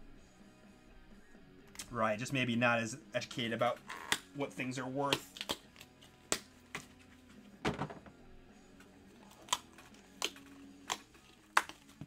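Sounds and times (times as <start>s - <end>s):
cards and plastic holders clicking: 5.1s - 7.0s, 8.8s - 12.0s.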